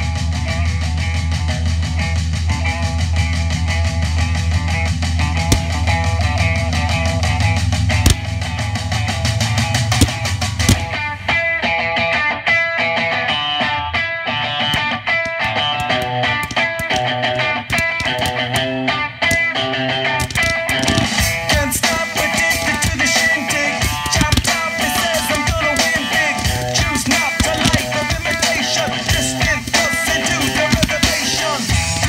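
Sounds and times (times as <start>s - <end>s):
rock music with guitar and drums: 0.0s - 32.0s.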